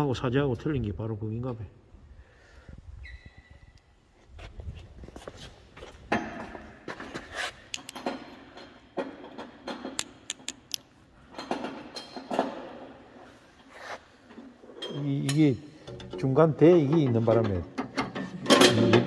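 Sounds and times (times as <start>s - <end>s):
hand tools clinking on metal: 14.8s - 19.0s.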